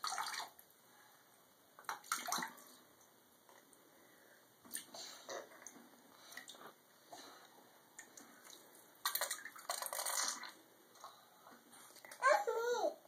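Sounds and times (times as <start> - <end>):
water splashing in bathtub: 0.0 - 0.7, 1.8 - 3.0, 4.7 - 6.7, 8.0 - 10.7
water pouring from toy teapot: 9.1 - 10.6.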